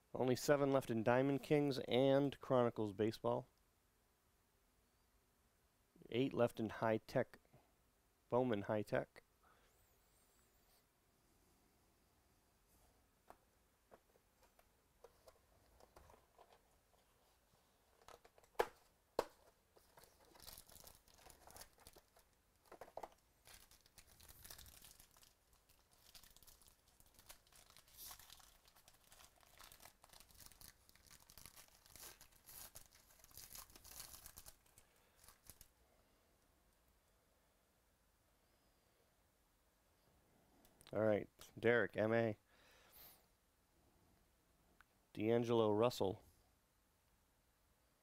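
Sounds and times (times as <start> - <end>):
foil wrapper crinkling: 19.8 - 35.7.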